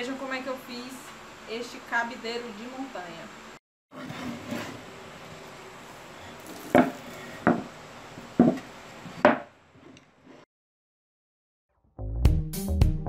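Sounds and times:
wood knocking on wood: 0:06.7 - 0:07.7, 0:08.4 - 0:09.5.

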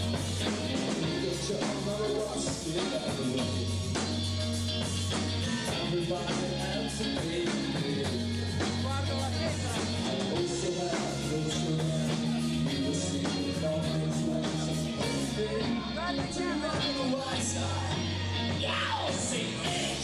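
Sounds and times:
rock music: 0:00.0 - 0:20.0.

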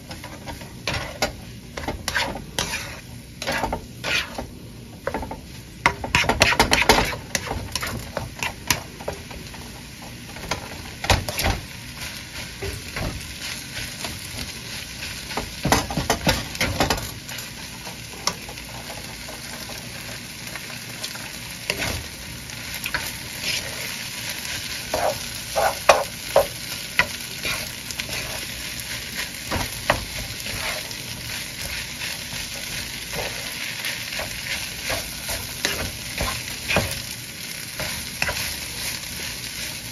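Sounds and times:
spatula scraping skillet: 0:00.0 - 0:08.9, 0:21.0 - 0:39.9
fried rice sizzling: 0:00.0 - 0:39.9.

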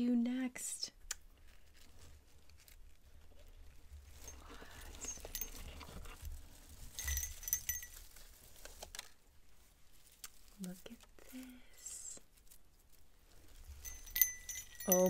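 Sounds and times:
shredded paper rustling: 0:01.4 - 0:11.4
small bells tinkling: 0:04.1 - 0:08.4, 0:13.5 - 0:15.0.

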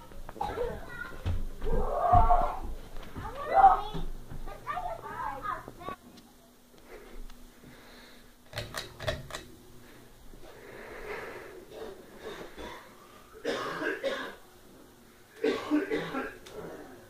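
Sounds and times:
person coughing: 0:11.7 - 0:14.4, 0:15.4 - 0:16.8.

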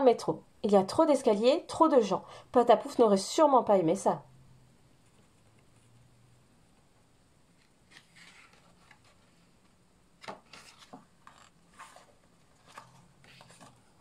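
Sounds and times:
book pages rustling: 0:07.5 - 0:14.0
page flaps turning: 0:07.6 - 0:09.4, 0:10.2 - 0:13.8.

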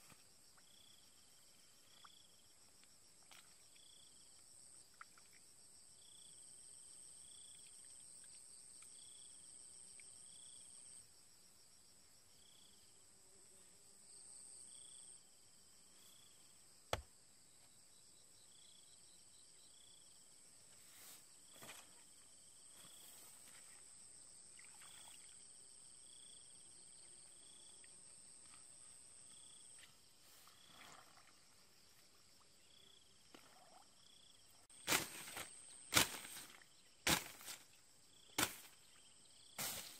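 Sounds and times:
crickets trilling: 0:00.0 - 0:11.1, 0:17.4 - 0:39.9
hoe digging into wet soil: 0:39.6 - 0:39.9.

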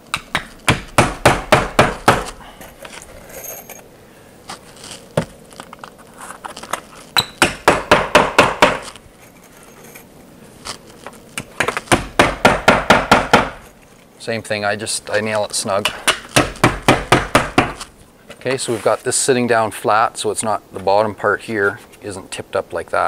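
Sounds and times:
hammer tapping nails: 0:00.1 - 0:02.4, 0:07.2 - 0:09.0, 0:11.4 - 0:13.6, 0:15.8 - 0:17.9.

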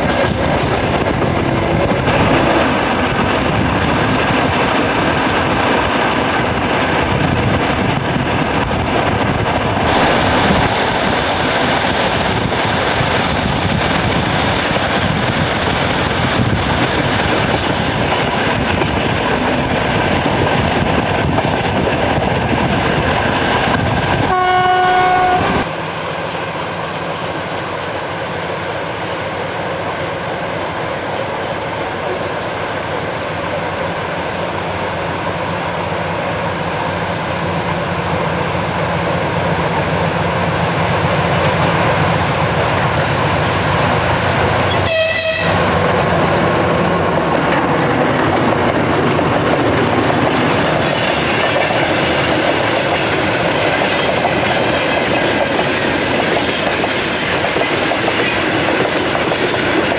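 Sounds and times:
passenger train running noise: 0:00.0 - 0:59.9
locomotive horn: 0:24.3 - 0:25.7, 0:44.7 - 0:45.7.

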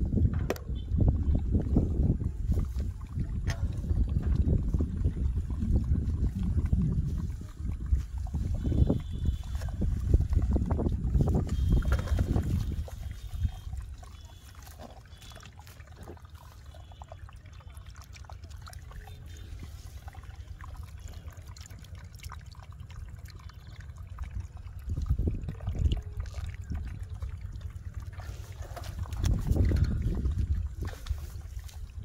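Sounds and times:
low rumble: 0:00.0 - 0:14.1
water trickling into pool: 0:00.0 - 0:32.0.

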